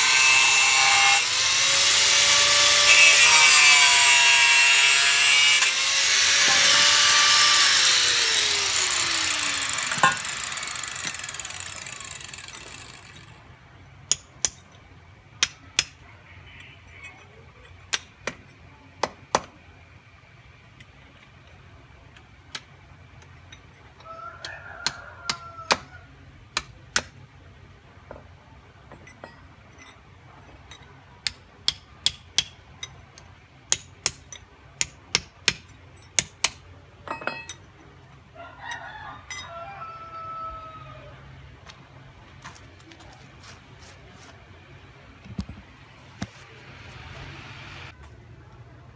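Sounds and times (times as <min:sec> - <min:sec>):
angle grinder cutting and spinning down: 0:00.0 - 0:13.4.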